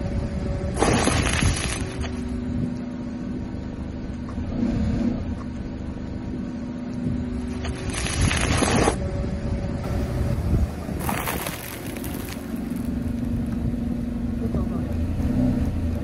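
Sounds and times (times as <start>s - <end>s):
car rolling on wet asphalt: 9.9s - 16.0s.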